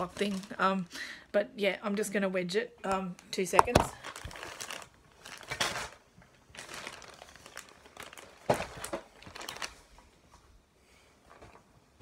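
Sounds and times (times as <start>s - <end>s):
plastic packaging crinkling: 0.0s - 0.9s, 3.6s - 10.1s.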